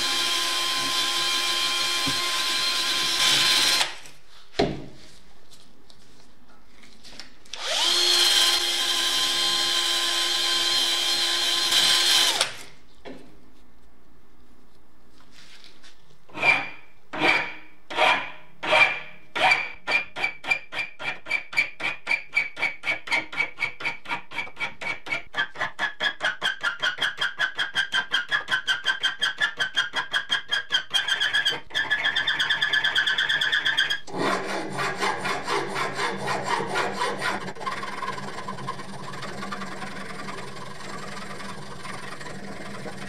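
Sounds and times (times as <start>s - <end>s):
hand file rasping on metal nut: 16.3s - 43.0s.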